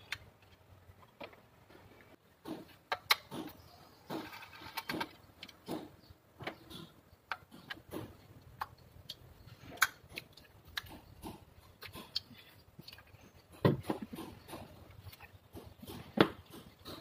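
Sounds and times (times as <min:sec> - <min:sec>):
hands clicking engine connectors: 0:02.4 - 0:09.2.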